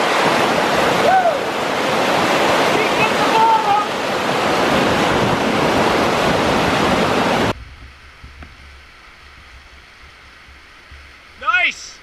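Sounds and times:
whitewater rapids rushing: 0.0s - 7.5s
distant rushing water: 0.0s - 12.0s.

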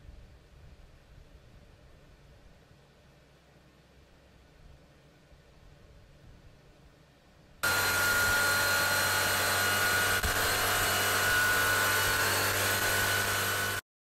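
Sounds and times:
machine whirring with high whine: 7.6s - 13.8s.

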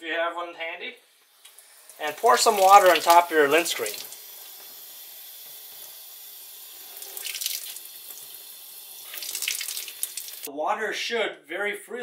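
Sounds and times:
tap water splashing through screen: 1.4s - 6.0s, 7.0s - 8.4s, 9.0s - 10.5s.

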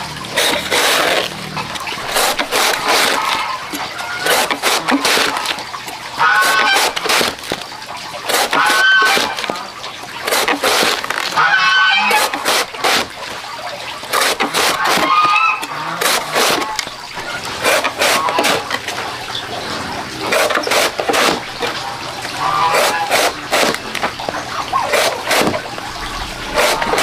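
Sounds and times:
knife slicing bamboo shoot: 16.0s - 16.7s, 22.7s - 23.8s, 24.9s - 25.6s, 26.5s - 27.0s.

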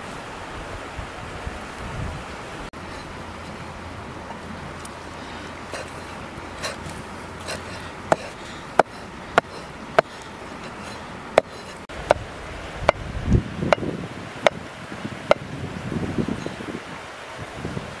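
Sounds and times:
cleaver chopping on wooden block: 7.5s - 12.2s.

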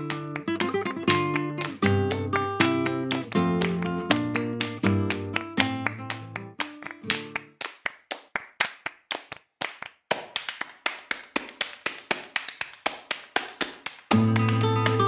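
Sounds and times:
guitar: 0.0s - 7.7s, 14.0s - 15.0s
flamenco percussion taps and claps: 0.0s - 15.0s.

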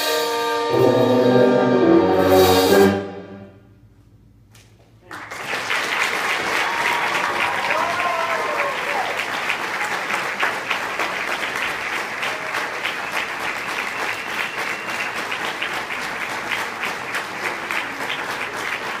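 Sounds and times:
audience applauding: 5.0s - 19.0s.

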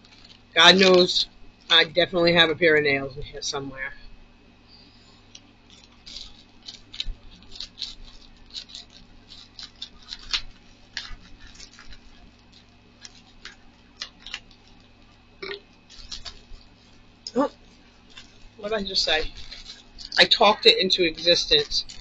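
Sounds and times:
plastic crinkling: 0.0s - 1.9s, 5.0s - 22.0s
scissors snipping plastic: 5.3s - 15.0s.

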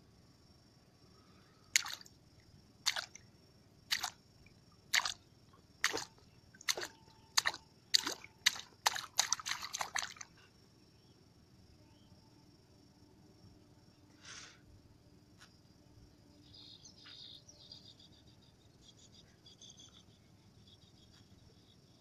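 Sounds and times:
water splashing: 1.8s - 2.1s, 2.9s - 3.2s, 3.9s - 4.2s, 4.9s - 5.2s, 5.8s - 10.3s.

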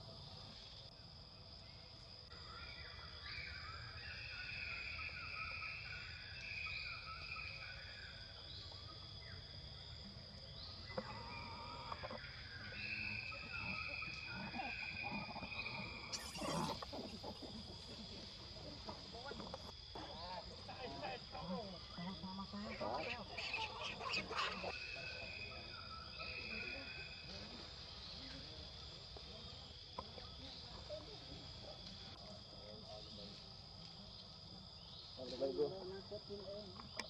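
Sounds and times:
insects droning: 0.0s - 37.0s
warbling calls: 10.9s - 18.2s, 19.3s - 27.1s.

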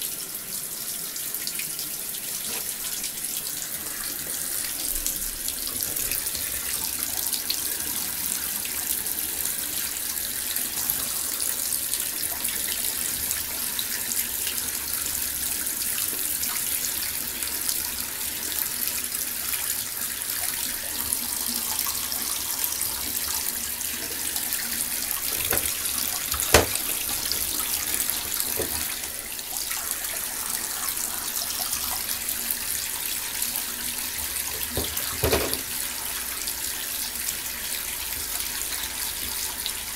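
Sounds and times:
water splashing into bathtub: 21.9s - 30.1s, 34.1s - 35.8s.

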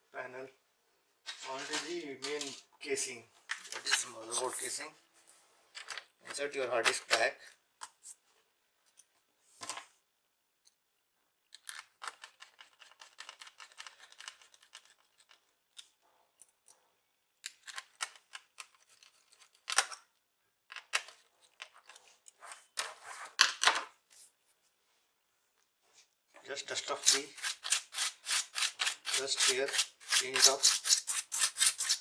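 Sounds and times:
laptop parts clicking and scraping: 11.5s - 16.8s, 17.4s - 20.1s, 20.7s - 23.6s, 26.8s - 32.0s.

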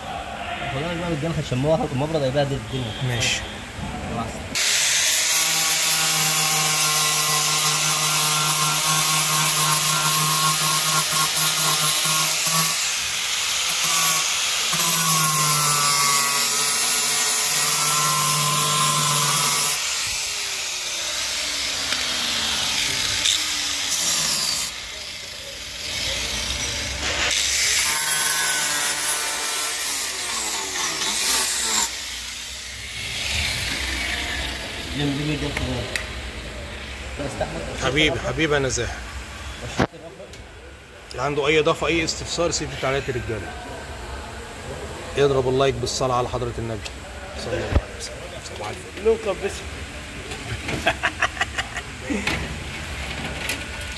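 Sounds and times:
angle grinder grinding metal: 4.6s - 35.4s.

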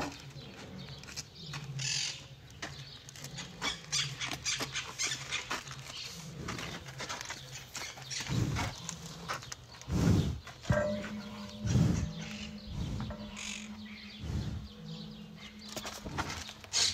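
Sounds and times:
rhinoceros blowing heavy breaths: 5.6s - 7.2s, 8.0s - 16.9s.

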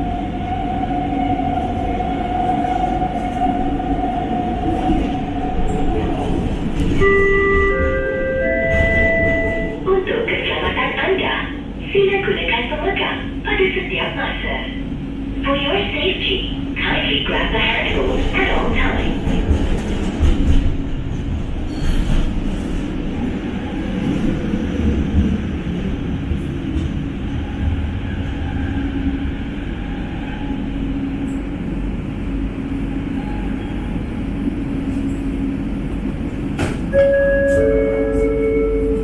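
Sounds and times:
train wheel rumble: 0.0s - 39.0s
two-note tone: 7.0s - 9.8s, 36.9s - 39.0s.

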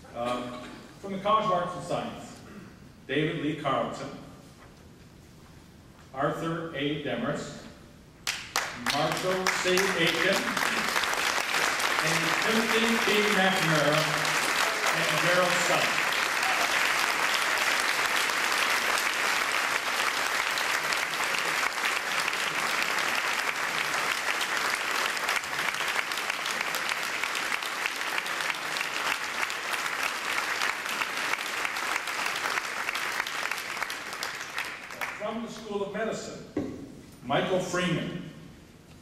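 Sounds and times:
audience applauding: 8.2s - 35.2s.

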